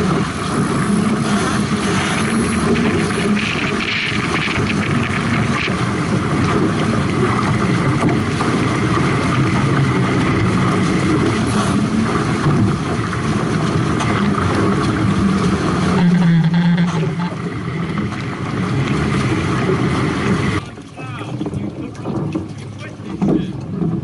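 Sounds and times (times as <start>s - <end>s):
wind buffeting microphone: 0.0s - 16.0s
water rushing past hulls: 0.0s - 24.0s.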